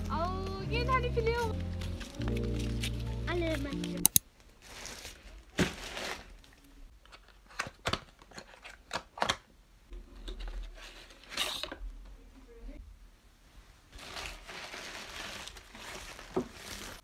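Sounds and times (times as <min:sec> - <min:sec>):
plastic bag rustling: 0:04.4 - 0:06.7, 0:13.9 - 0:17.0.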